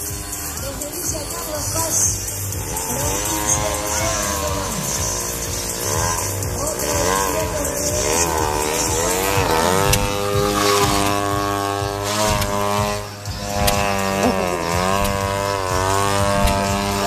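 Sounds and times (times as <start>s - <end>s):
model plane engine swooping: 0.0s - 17.0s.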